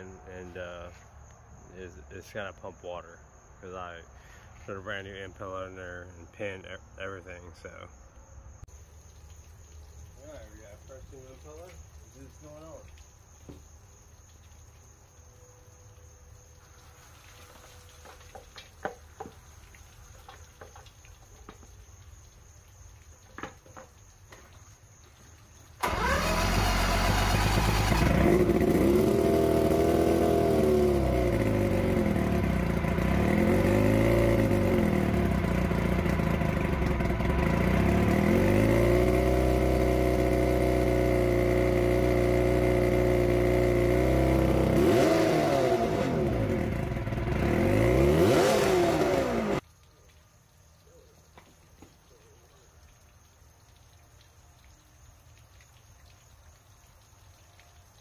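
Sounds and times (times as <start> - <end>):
outboard motor revving: 25.8 - 49.6.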